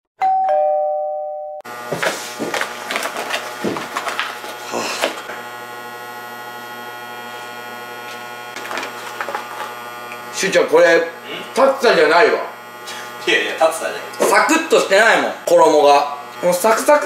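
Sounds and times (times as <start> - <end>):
refrigerator humming: 1.7 - 17.0
paper box rustling and clicking: 2.0 - 5.2.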